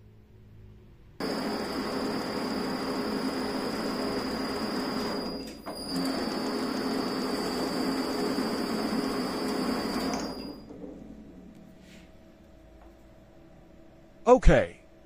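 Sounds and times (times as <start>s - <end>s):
lathe motor hum and whine: 1.2s - 10.6s.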